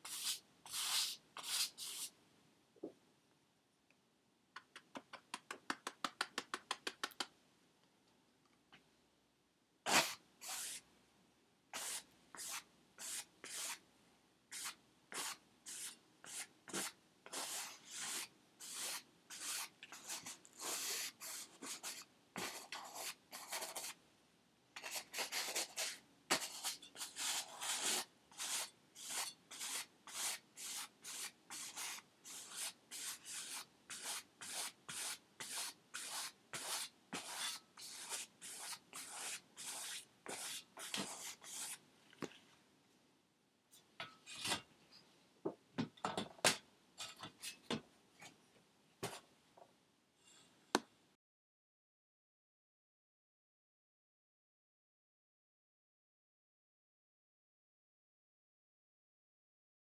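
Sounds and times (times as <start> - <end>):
paintbrush strokes on canvas: 0.0 - 2.1, 24.8 - 41.8.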